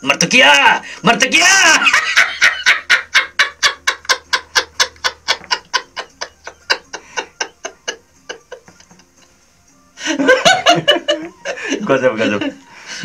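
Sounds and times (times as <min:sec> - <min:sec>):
hearty laughter: 0:01.8 - 0:09.3, 0:10.0 - 0:13.0.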